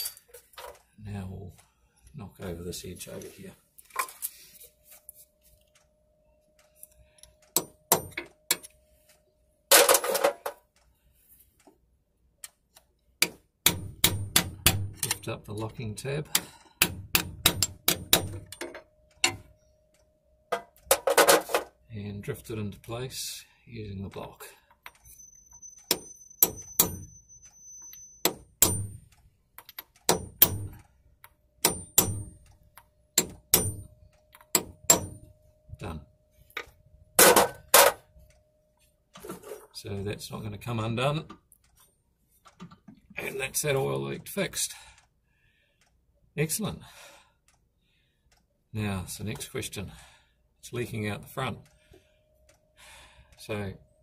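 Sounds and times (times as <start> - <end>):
hammer knocking on metal: 30.1 - 30.8.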